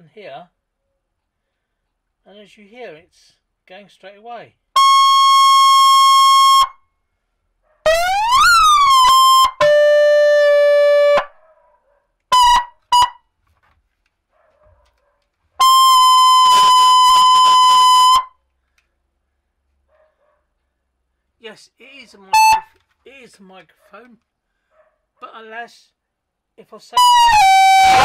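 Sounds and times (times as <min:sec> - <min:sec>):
electronic vehicle siren: 0:04.8 - 0:06.8, 0:07.9 - 0:11.3, 0:12.3 - 0:13.2, 0:15.6 - 0:18.4, 0:22.3 - 0:22.7, 0:27.0 - 0:28.0.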